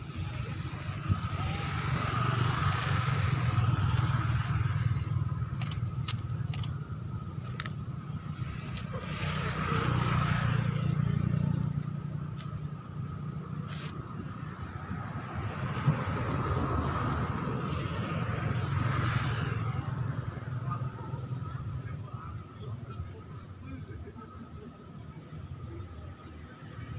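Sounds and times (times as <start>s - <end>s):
vehicles passing: 0.0s - 26.9s
sharp clicks: 5.0s - 6.8s.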